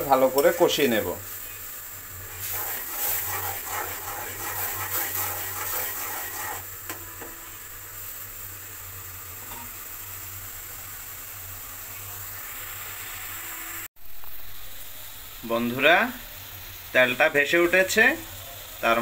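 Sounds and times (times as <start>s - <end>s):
masala sizzling in oil: 0.0s - 19.0s
spatula scraping a metal pan: 2.3s - 6.6s.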